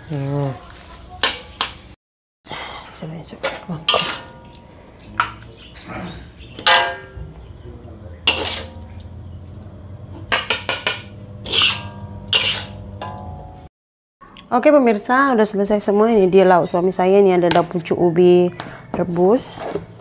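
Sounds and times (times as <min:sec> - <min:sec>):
low steady hum: 0:03.0 - 0:13.7
metal spatula scraping a wok: 0:03.4 - 0:05.0, 0:08.2 - 0:13.2
spatula knocks ringing: 0:03.4 - 0:05.6, 0:06.5 - 0:07.4, 0:10.2 - 0:13.7.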